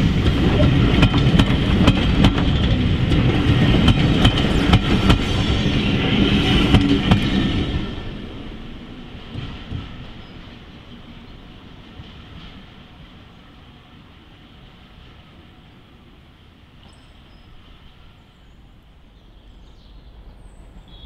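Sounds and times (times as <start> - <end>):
train wheels clicking over rail joints: 0.0 - 8.1, 9.0 - 13.3
train running rumble: 0.0 - 21.0.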